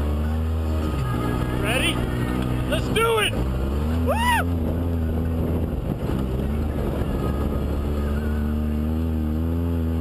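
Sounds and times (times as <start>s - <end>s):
off-road vehicle engine running: 0.0s - 10.0s.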